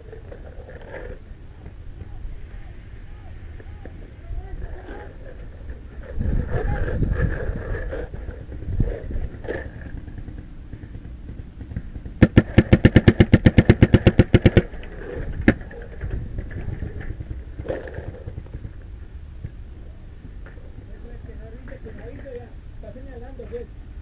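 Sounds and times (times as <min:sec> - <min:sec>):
paintball marker firing: 0:08.9 - 0:15.9.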